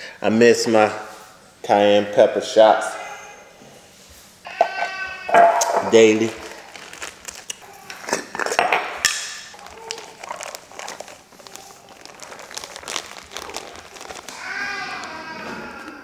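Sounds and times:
plastic bag crinkling: 5.6s - 16.0s
pepper pouring into glass jar: 9.5s - 14.4s.

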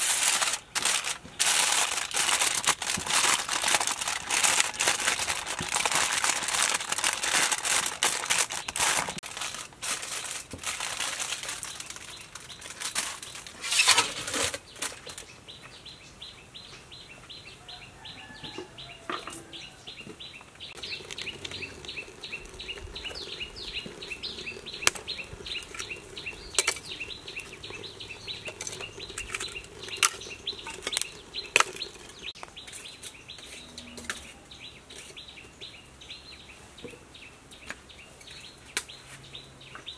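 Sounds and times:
aluminium foil crinkling: 0.0s - 15.2s, 20.8s - 33.0s
birds chirping: 10.2s - 39.9s.

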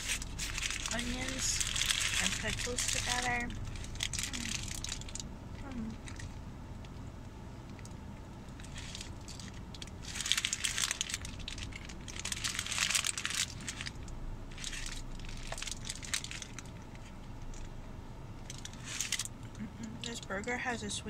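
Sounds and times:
paper wrapper crinkling: 0.0s - 5.3s, 8.6s - 17.7s, 18.4s - 19.3s
chewing hamburger: 3.5s - 5.3s.

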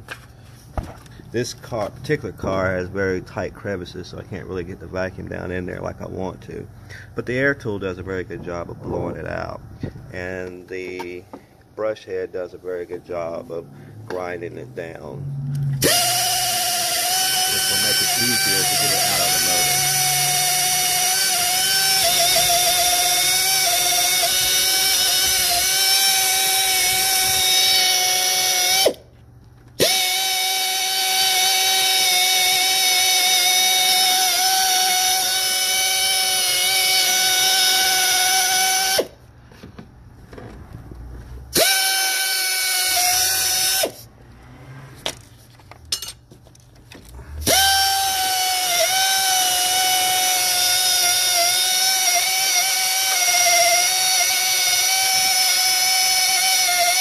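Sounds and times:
air tool high whine: 15.2s - 29.1s, 29.8s - 39.2s, 41.5s - 44.1s, 47.2s - 57.0s.

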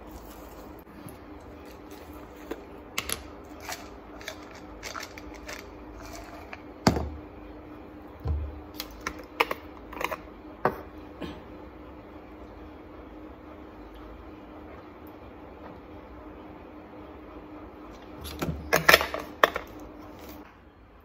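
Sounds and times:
pills rattling in bottle: 3.6s - 6.5s.

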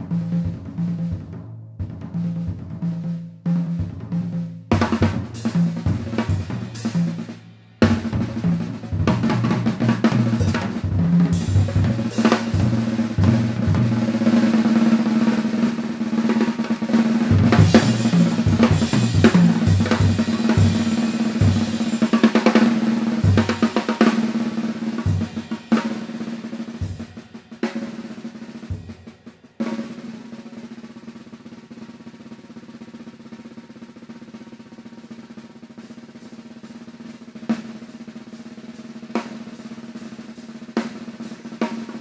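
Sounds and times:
snare drum rolls: 0.0s - 42.0s
swing jazz band: 0.1s - 27.2s.

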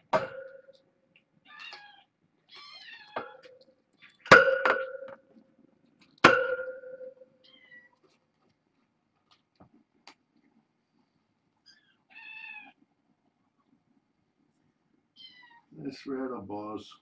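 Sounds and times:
sharp metallic knocks: 0.0s - 0.8s, 4.3s - 5.3s, 6.2s - 7.3s
kittens meowing: 1.4s - 3.5s, 11.7s - 12.8s, 15.2s - 15.7s.

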